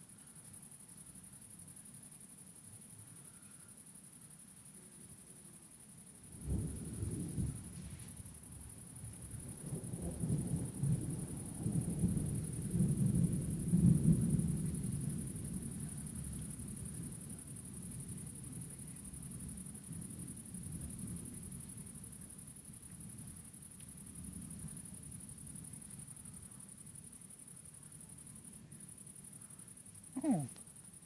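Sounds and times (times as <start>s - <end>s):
thunder rumbling: 9.4s - 16.9s.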